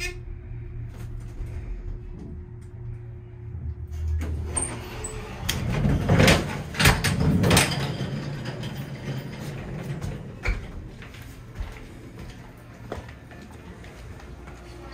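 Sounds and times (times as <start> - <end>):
elevator low hum: 0.0 - 14.9
elevator doors sliding open: 3.9 - 11.1.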